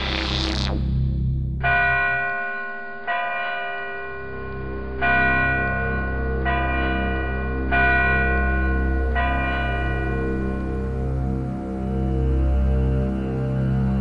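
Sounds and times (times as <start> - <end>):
large bell ringing: 1.6 - 12.0
low steady drone: 3.8 - 14.0.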